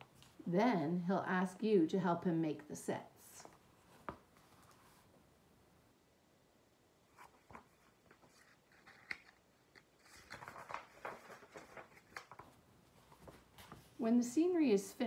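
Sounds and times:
book pages rustling: 3.4 - 5.2, 7.1 - 14.0.

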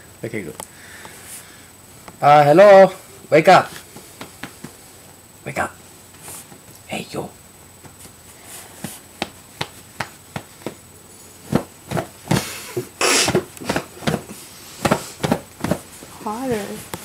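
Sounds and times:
puppet thumping on pillow: 13.3 - 15.9
bedding rustle: 13.3 - 17.0.

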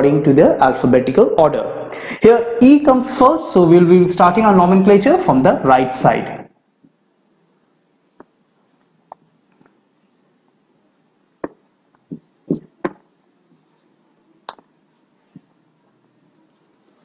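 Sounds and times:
marker pen on whiteboard: 7.6 - 17.0.

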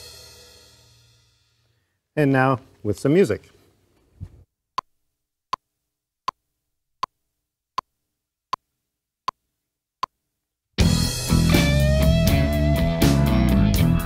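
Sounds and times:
rock backing track with electric guitar: 10.8 - 14.0.

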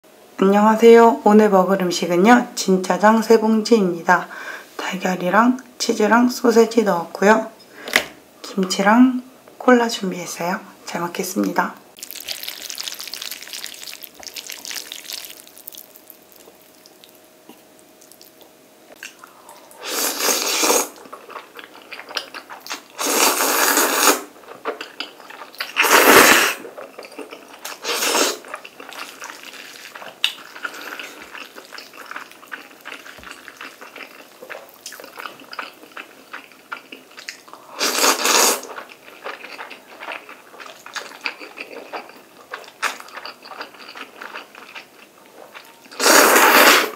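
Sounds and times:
wet chewing: 12.0 - 46.7
noodle slurps: 19.8 - 21.0, 23.0 - 24.3, 25.6 - 26.7, 37.8 - 38.7, 45.9 - 46.9.

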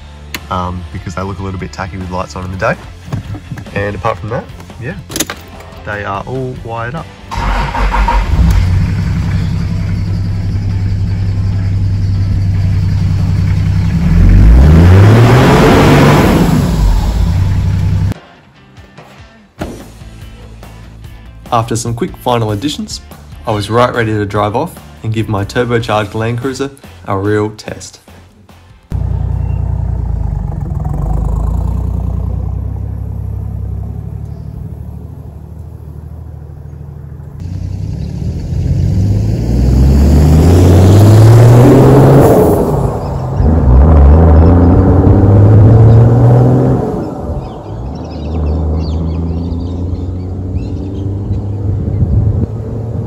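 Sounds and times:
diesel engine idling and revving: 6.4 - 18.2, 28.9 - 53.0.

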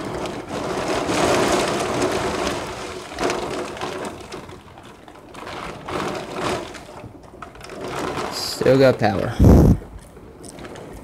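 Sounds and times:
heavy rain pouring: 0.0 - 11.0
wind gusts: 7.8 - 11.0.

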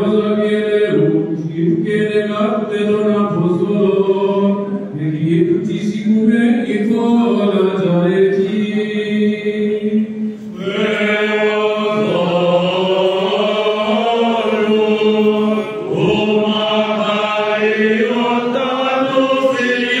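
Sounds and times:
voices chanting slow melody: 7.1 - 20.0.

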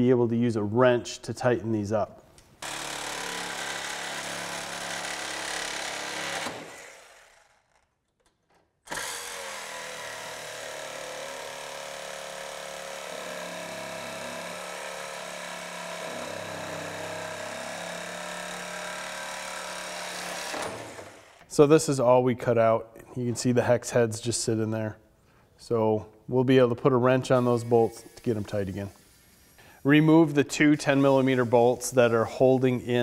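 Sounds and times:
rotary tool cutting sheet metal: 2.6 - 7.9, 8.9 - 21.5.

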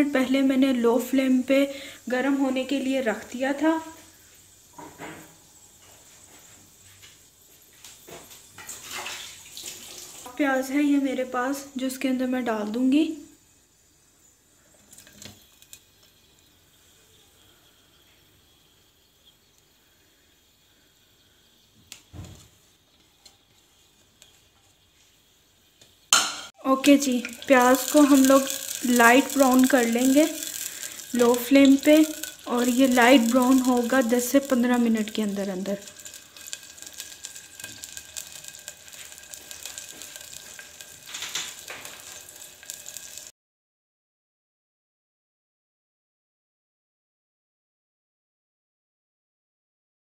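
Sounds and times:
background hiss: 0.0 - 43.3
onions sizzling in oil: 0.0 - 43.3
onion thumping into pot: 26.1 - 26.5.

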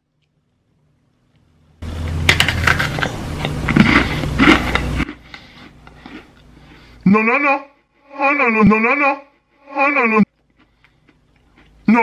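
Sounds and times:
crunching cookie chewing: 2.5 - 7.0, 10.2 - 12.0.

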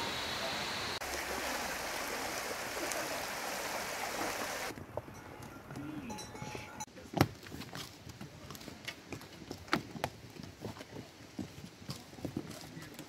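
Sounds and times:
horse hooves on dirt trail: 4.2 - 13.0.

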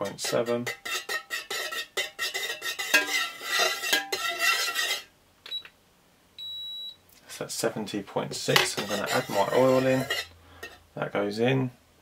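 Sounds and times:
metal stirrer scraping pitcher: 0.0 - 5.1, 8.5 - 10.8
thermometer beep: 6.4 - 7.0.

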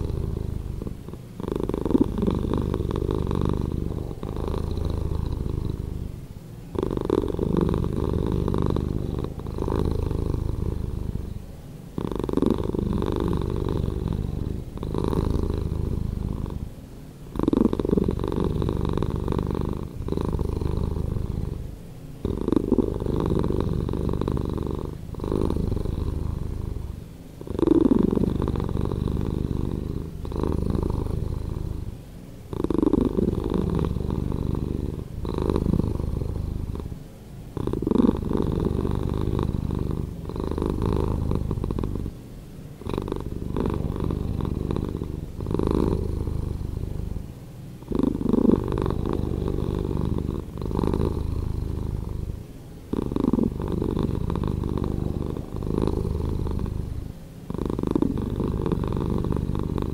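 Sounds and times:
cat purring: 0.0 - 59.9.

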